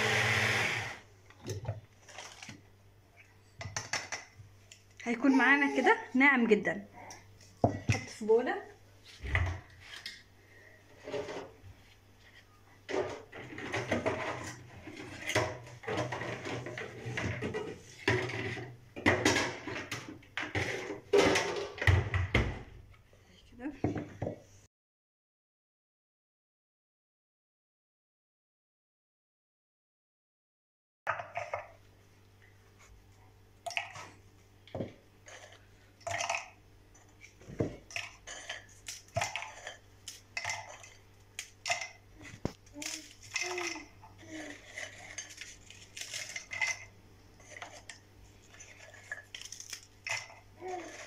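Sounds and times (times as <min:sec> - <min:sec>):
spatula scraping plastic jar: 0:43.4 - 0:51.0
biscuits cracking and crunching: 0:48.8 - 0:50.3.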